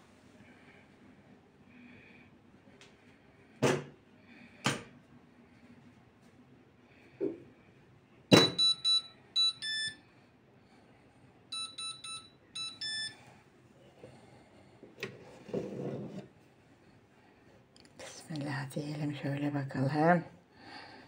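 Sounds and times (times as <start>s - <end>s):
coffee machine beep melody: 8.3s - 10.0s, 11.5s - 13.2s.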